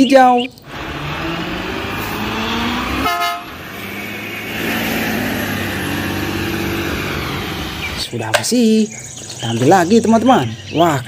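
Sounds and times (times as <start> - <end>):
truck diesel engine running: 0.6 - 8.2
short horn toot: 3.0 - 3.6.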